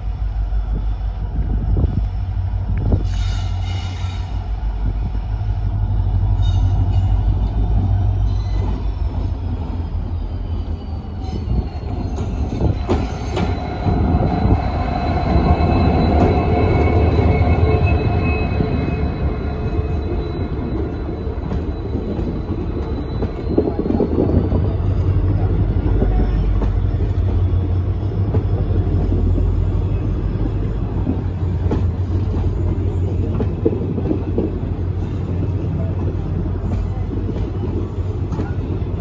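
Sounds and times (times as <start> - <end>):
diesel locomotive engine throbbing: 0.0 - 39.0
high wheel squeal: 6.2 - 33.6.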